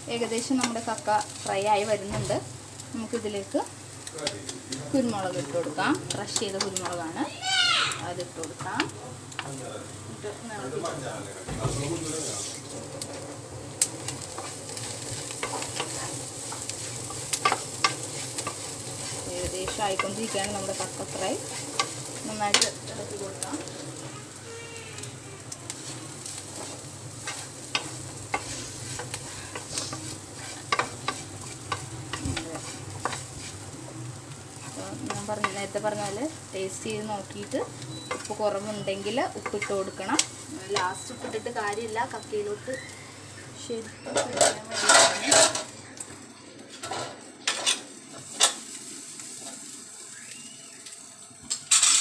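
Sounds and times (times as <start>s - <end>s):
frying sizzle: 0.0s - 52.0s
spatula scraping a pan: 14.0s - 23.0s, 25.7s - 36.2s, 44.2s - 45.7s.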